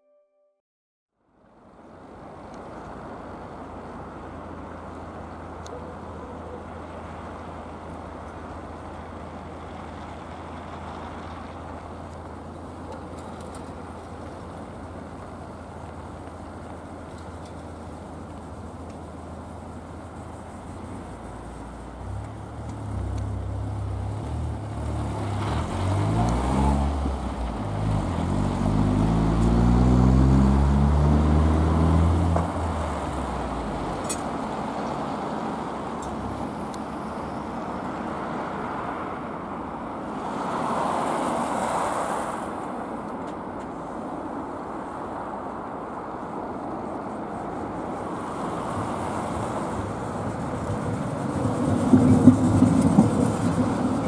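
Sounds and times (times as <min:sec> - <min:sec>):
traffic rumble: 0:01.2 - 0:54.0
vehicle engine revving: 0:21.9 - 0:34.0
vehicle passing: 0:21.9 - 0:42.8, 0:47.4 - 0:54.0.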